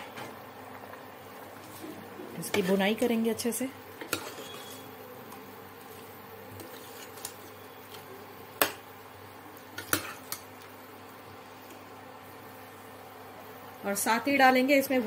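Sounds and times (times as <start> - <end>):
ladle stirring food in a pot: 1.4 - 8.9, 9.6 - 10.8.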